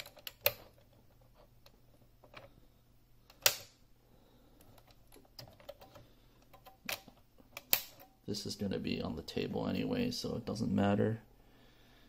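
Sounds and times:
plastic keyboard clicks and knocks: 4.7 - 8.2.

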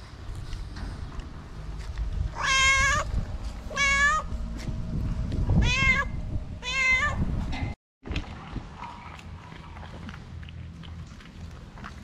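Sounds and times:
cat meowing: 2.4 - 3.1, 3.7 - 4.3, 5.6 - 7.2.

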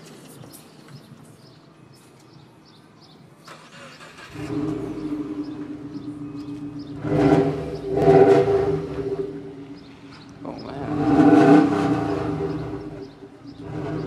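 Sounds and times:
car engine starting and idling: 3.4 - 14.0
car engine revving: 3.5 - 14.0.

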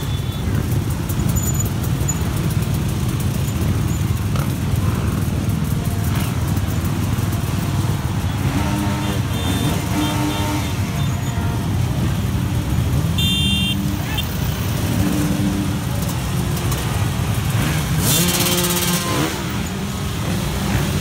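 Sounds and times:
dirt bike engines rumbling: 0.0 - 21.0.

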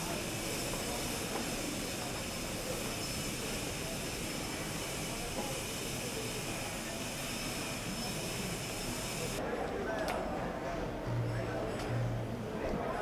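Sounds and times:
outdoor hiss and rumble: 0.0 - 9.5.

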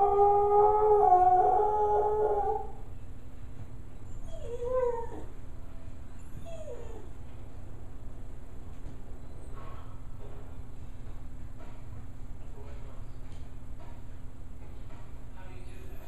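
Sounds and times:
dog howling: 0.0 - 2.8, 4.2 - 5.4
dog whining: 4.1 - 5.4, 6.1 - 7.2.

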